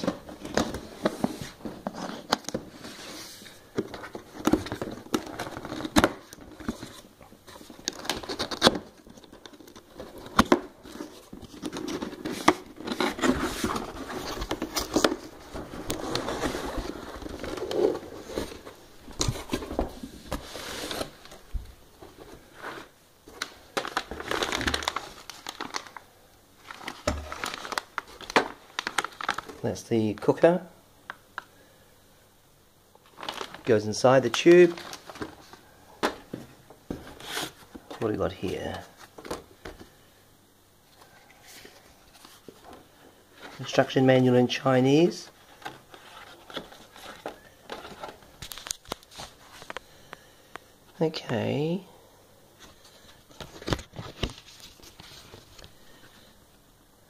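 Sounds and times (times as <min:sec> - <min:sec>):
plastic wrapping crinkling: 0:00.0 - 0:30.4, 0:33.0 - 0:39.9, 0:45.3 - 0:49.8.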